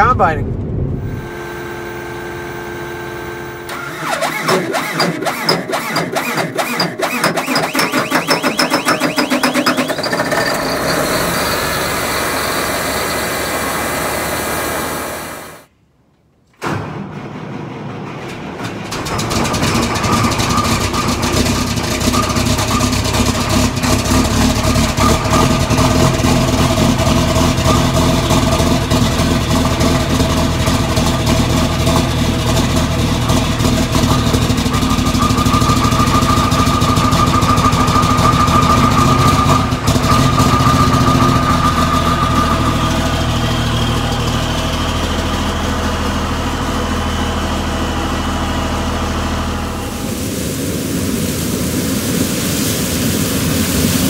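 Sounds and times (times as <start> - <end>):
high engine whine: 0.0 - 15.8, 18.2 - 54.0
truck diesel engine idling: 19.0 - 50.0.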